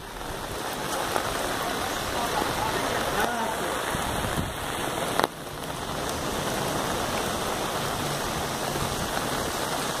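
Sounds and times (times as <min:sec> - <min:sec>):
rain on standing water: 0:00.0 - 0:10.0.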